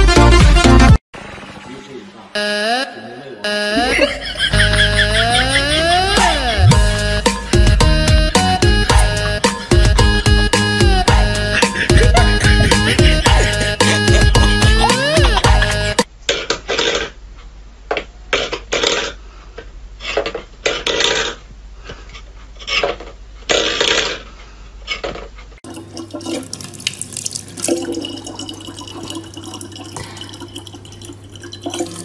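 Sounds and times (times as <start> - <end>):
guitar music: 4.6 - 16.0
water stream into plastic bottle: 25.6 - 32.0.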